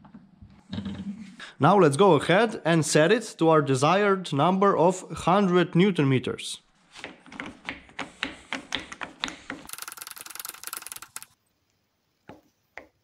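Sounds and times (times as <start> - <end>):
torque wrench mechanism clicking: 9.7 - 11.3.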